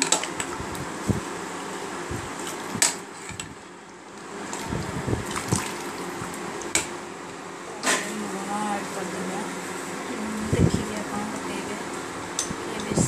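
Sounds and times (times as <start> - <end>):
water sloshing in a steel pot: 4.4 - 6.8.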